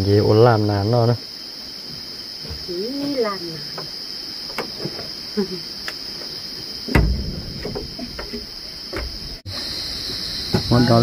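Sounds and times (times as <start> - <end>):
high-pitched insect drone: 0.0 - 11.0
heavy thud: 6.9 - 9.4.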